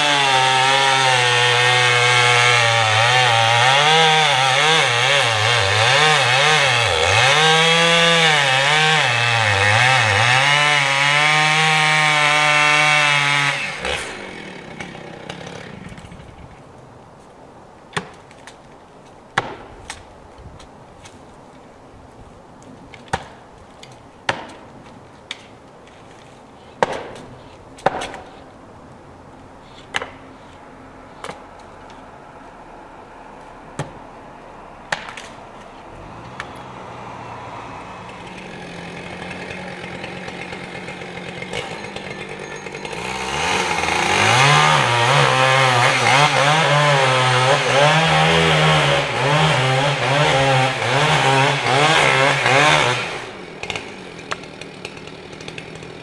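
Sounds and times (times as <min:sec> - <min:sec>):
chainsaw cutting into trunk: 0:00.0 - 0:16.4, 0:36.0 - 0:56.0.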